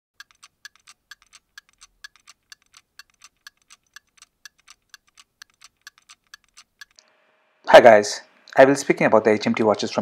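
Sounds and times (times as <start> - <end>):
mechanical watch ticking: 0.2 - 7.1.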